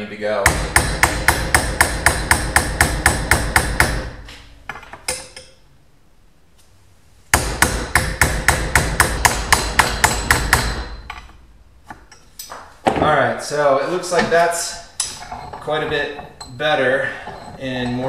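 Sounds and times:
hammer striking metal lever: 0:07.4 - 0:12.6.

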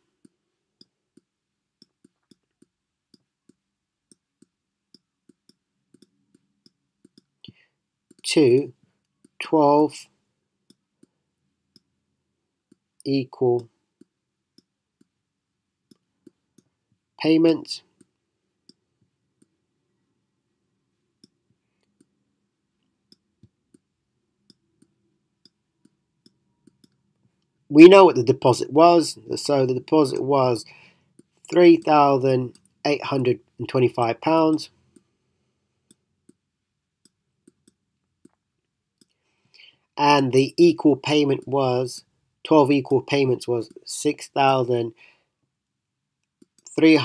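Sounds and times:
stylus tapping on tablet: 0:00.0 - 0:08.2.

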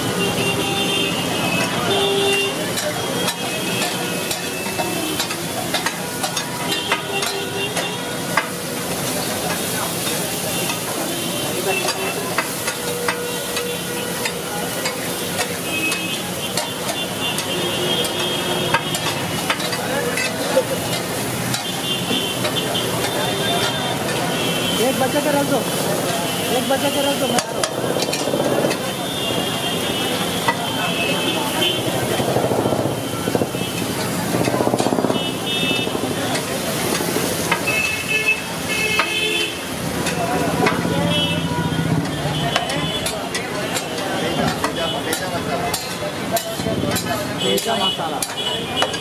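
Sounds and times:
food sizzling: 0:00.0 - 0:49.0
street traffic: 0:00.0 - 0:49.0
metal spatula scraping griddle: 0:02.6 - 0:29.0.

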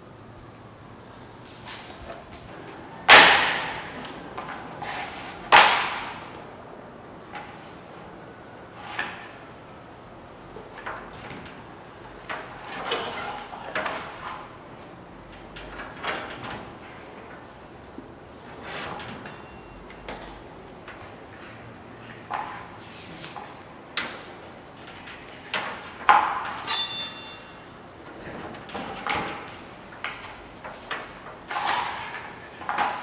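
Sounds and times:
loud sharp knocks: 0:03.1 - 0:04.0, 0:05.5 - 0:06.3.

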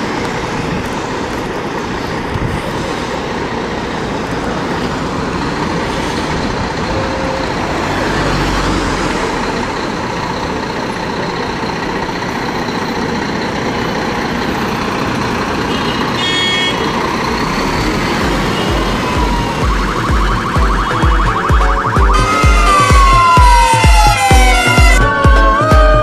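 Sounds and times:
large vehicle passing: 0:00.0 - 0:16.2, 0:16.8 - 0:25.0
emergency vehicle siren: 0:00.0 - 0:26.0
road traffic: 0:00.0 - 0:26.0.

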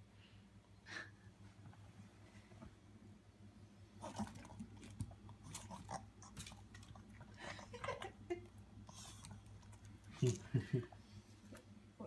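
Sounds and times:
dog chewing and lip-smacking: 0:04.0 - 0:08.1.

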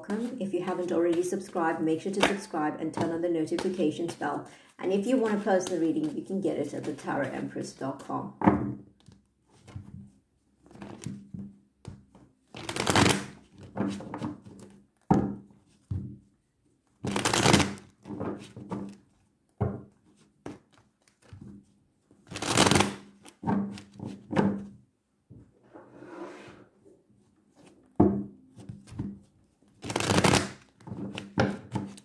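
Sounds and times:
cards being shuffled: 0:00.2 - 0:02.4, 0:05.0 - 0:08.1, 0:10.6 - 0:11.1, 0:11.9 - 0:14.7, 0:17.0 - 0:17.9, 0:20.4 - 0:21.6, 0:22.3 - 0:23.9, 0:28.6 - 0:32.0
cards tapping and rustling: 0:00.2 - 0:04.2, 0:05.0 - 0:08.1, 0:09.0 - 0:16.2, 0:20.0 - 0:21.7, 0:27.6 - 0:32.0.

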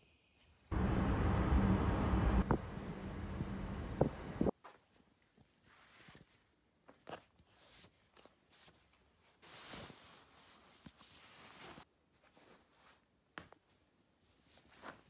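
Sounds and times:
clothes rustling: 0:04.5 - 0:15.0.

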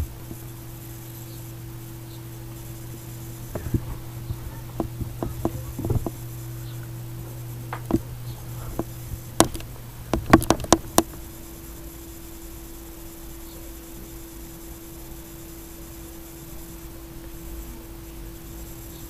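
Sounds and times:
low electrical hum: 0:00.0 - 0:19.0
light clicks and taps: 0:03.5 - 0:11.2
sharp clicks: 0:07.7 - 0:11.3.

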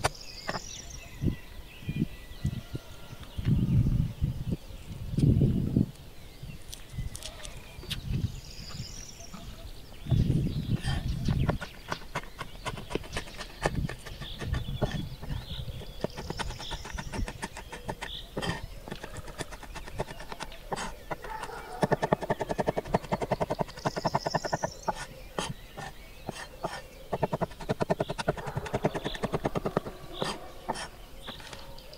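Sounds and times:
knife chopping on wooden board: 0:11.4 - 0:31.4.

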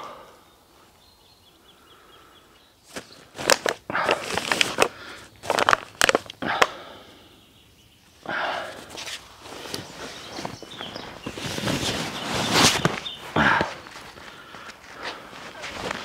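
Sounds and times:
faint bird chirping: 0:00.0 - 0:04.0, 0:06.4 - 0:16.0
backpack rustling and crackling: 0:02.9 - 0:06.7, 0:08.7 - 0:16.0.

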